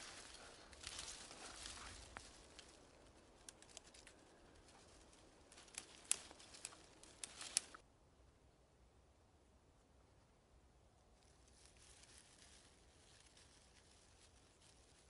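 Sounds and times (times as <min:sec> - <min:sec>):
twigs snapping: 0:00.0 - 0:07.8
dry grass and twigs rustling: 0:00.0 - 0:07.9, 0:11.0 - 0:15.0.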